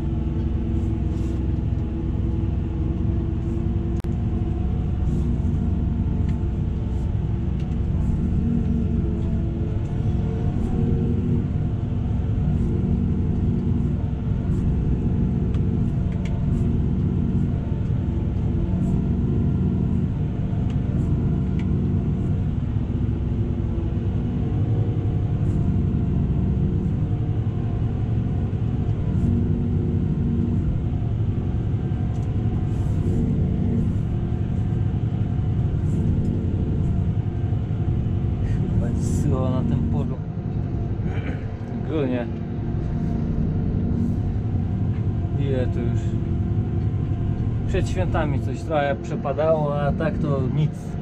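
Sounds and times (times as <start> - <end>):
tractor engine running under load: 0.0 - 51.0.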